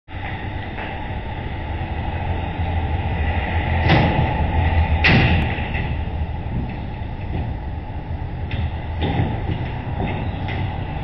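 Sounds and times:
steady low rumble: 0.1 - 11.0
trailer deck clanking on concrete: 5.0 - 11.0.

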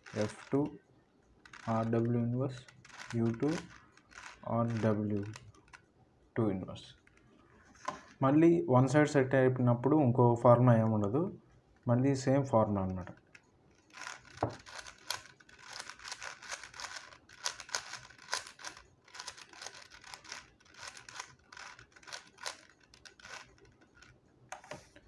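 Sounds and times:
puzzle cube clicking turns: 0.0 - 0.7, 1.4 - 5.9, 12.8 - 24.7.

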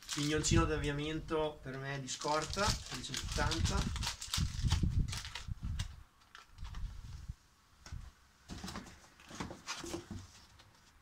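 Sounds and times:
packaging rustling: 0.0 - 0.5, 2.1 - 6.9.

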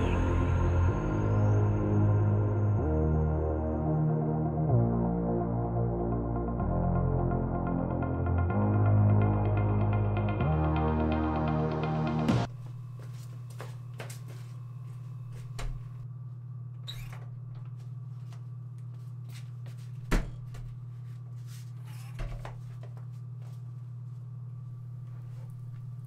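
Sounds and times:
steady low hum: 12.4 - 26.0.

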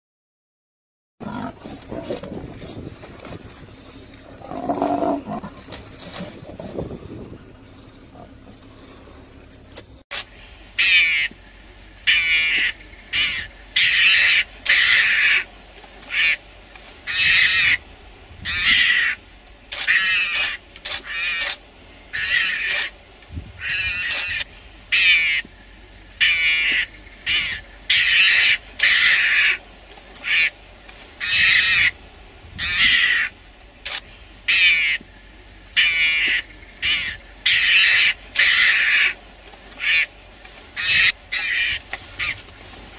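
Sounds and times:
animal harsh high calls: 12.1 - 15.5, 18.4 - 22.9, 26.2 - 29.6, 31.2 - 32.0, 35.8 - 39.2.

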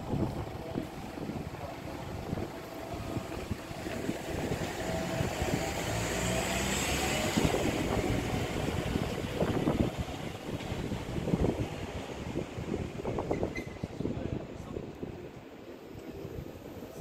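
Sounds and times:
street noise: 0.0 - 17.0
car passing: 2.7 - 13.1.

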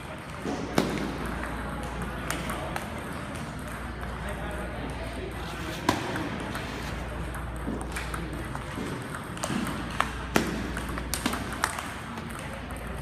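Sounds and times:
large hall hum: 0.0 - 13.0
table tennis ball ticking: 7.0 - 13.0.

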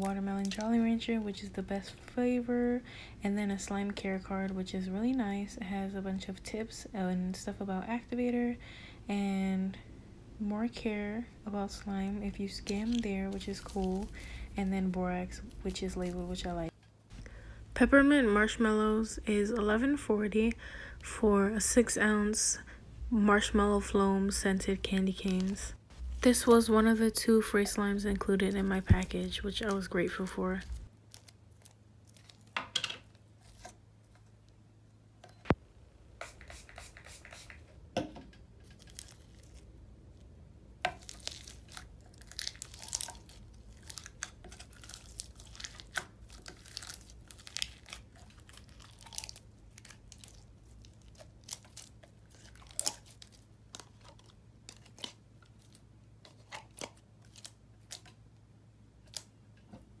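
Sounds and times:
plastic crinkling: 12.5 - 16.7, 38.6 - 39.7, 40.9 - 58.2
sticky slime tearing and crackling: 30.6 - 32.6, 40.9 - 55.8.

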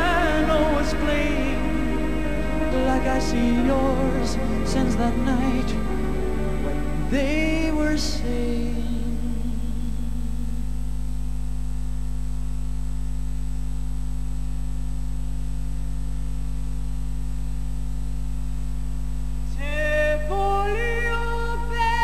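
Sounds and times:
solo singing voice: 0.0 - 10.9, 19.5 - 22.0
electrical mains hum: 0.0 - 22.0.

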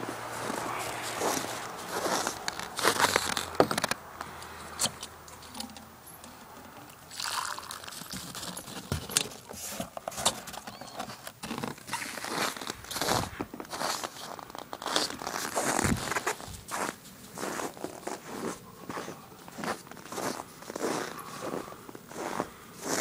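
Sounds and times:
footsteps crunching in snow: 0.0 - 4.0, 11.5 - 23.0.

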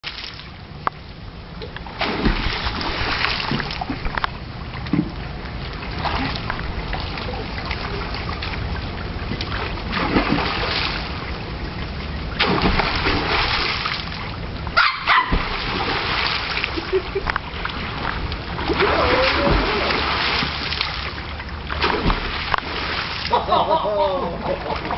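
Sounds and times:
pool water splashing: 0.0 - 24.9
puppy barking: 14.8 - 15.4.

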